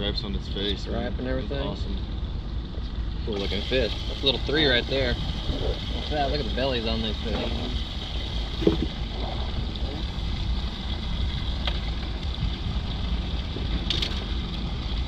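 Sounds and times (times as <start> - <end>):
wind rumbling on microphone: 1.8 - 15.0
water splash: 7.2 - 12.1.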